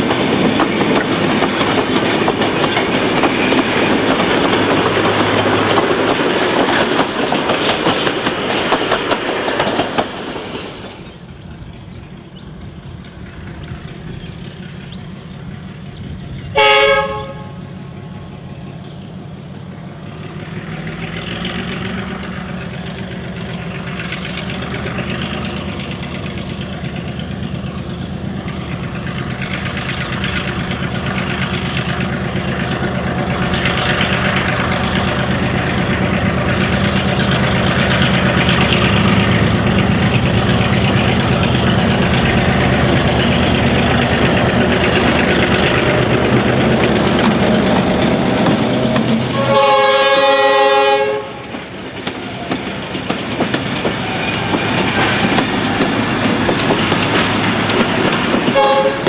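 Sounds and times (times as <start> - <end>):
diesel locomotive running: 0.0 - 59.0
train wheels clicking over rail joints: 0.0 - 59.0
locomotive horn: 16.5 - 17.7, 49.3 - 51.6, 58.5 - 59.0.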